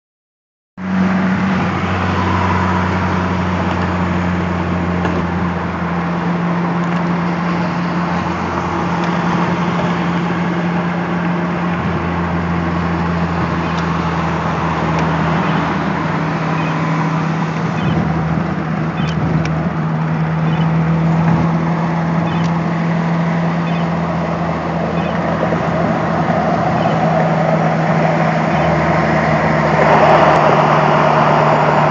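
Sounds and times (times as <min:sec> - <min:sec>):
engine and drivetrain hum: 0:00.8 - 0:31.9.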